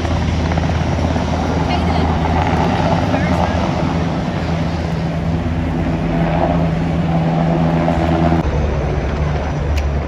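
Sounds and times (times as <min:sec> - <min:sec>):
helicopter hovering: 0:00.0 - 0:10.0.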